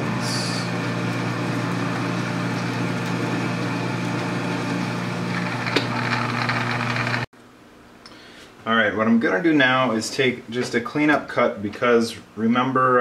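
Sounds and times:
metal lathe humming: 0.0s - 7.3s.

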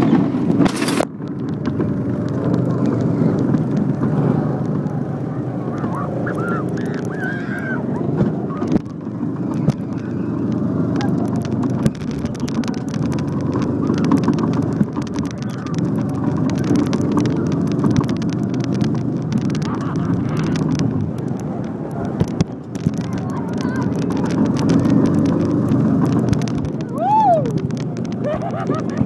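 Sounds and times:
go-kart engine running: 0.0s - 29.0s
kart rattling and clicking: 0.0s - 29.0s
person laughing or whooping: 5.9s - 8.0s, 26.9s - 27.5s, 28.2s - 29.0s.

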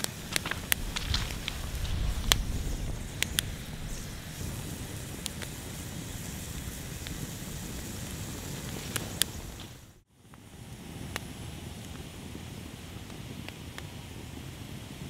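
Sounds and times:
campfire crackling and popping: 0.0s - 10.0s
low fire rumble: 0.0s - 10.0s.

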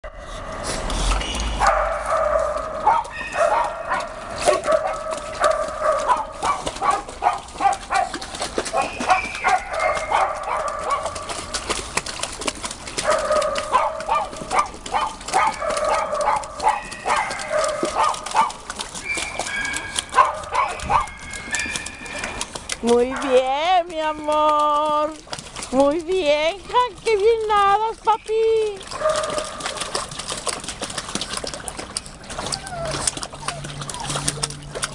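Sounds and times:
dog paddling in water: 0.1s - 34.9s
dog whining: 32.4s - 34.7s.

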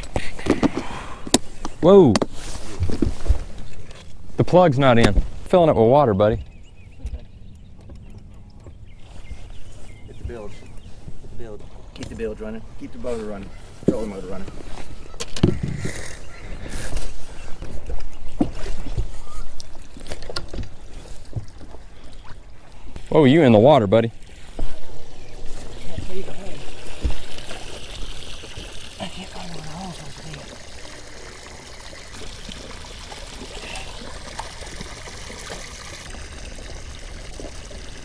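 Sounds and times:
bilge pump water splashing: 19.9s - 38.0s.

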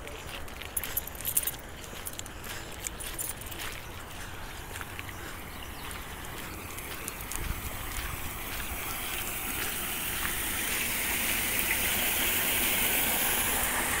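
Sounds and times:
water running along a gutter: 0.0s - 14.0s
water pouring into a drain grate: 5.1s - 14.0s.

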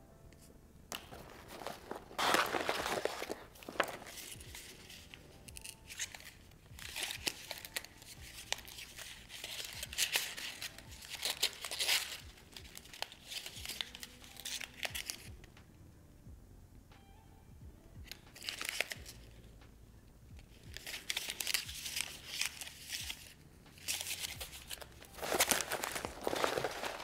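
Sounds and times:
plastic packets crinkling: 0.9s - 15.3s, 18.1s - 19.1s, 20.8s - 27.0s.

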